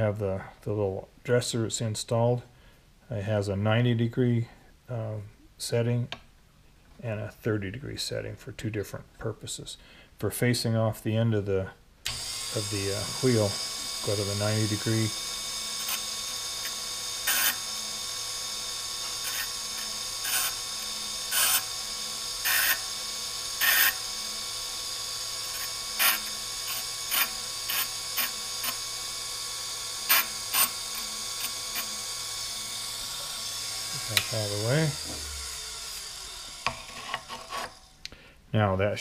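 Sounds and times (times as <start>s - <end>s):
grinder motor humming: 12.1s - 38.1s.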